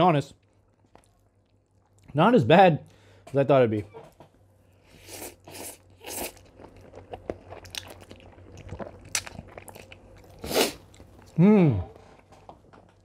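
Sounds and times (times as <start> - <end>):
person eating noodles: 4.8 - 12.4.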